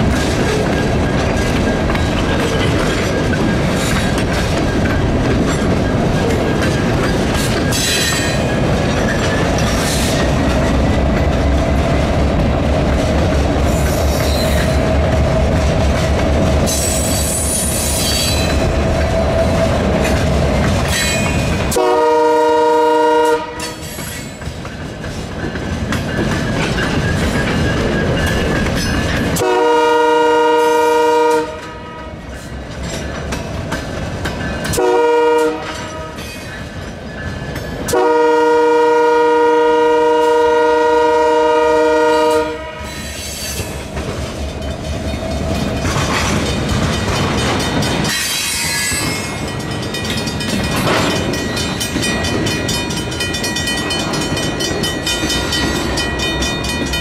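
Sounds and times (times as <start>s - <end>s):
train wheel clatter: 0.0s - 39.0s, 39.6s - 57.0s
train engine running past: 0.0s - 57.0s
locomotive air horn: 21.7s - 23.8s, 29.4s - 32.2s, 34.8s - 36.2s, 37.9s - 43.0s.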